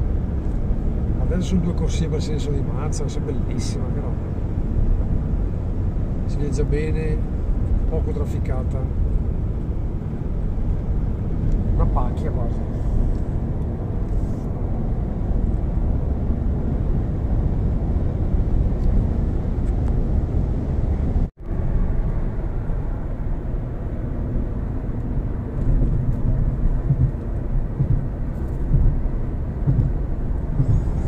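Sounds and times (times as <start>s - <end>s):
road and engine noise in car: 0.0s - 31.0s.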